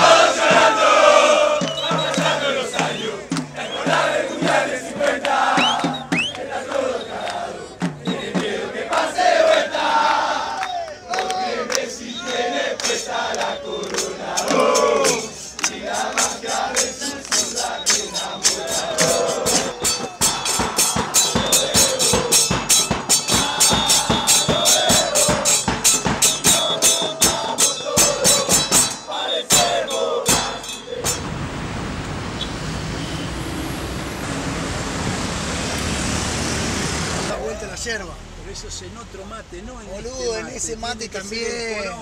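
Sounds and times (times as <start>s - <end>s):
crowd chanting: 0.0s - 37.6s
city traffic noise: 0.0s - 42.0s
bass drum and cymbal beating: 14.0s - 31.7s.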